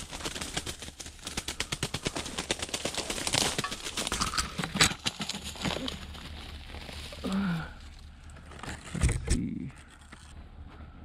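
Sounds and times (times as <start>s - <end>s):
footsteps crunching through dry brush: 2.0s - 8.9s.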